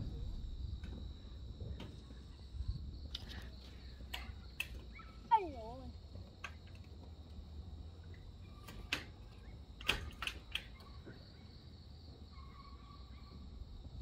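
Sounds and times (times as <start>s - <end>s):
steady low rumble: 0.0s - 4.2s.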